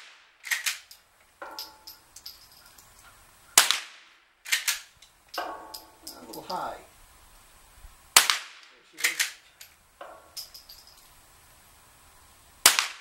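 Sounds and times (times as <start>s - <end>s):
metallic clacks of rifle slide: 0.4s - 3.2s, 4.5s - 6.7s, 9.0s - 11.2s
rifle shots: 3.6s - 5.8s, 8.1s - 9.4s, 12.6s - 13.0s.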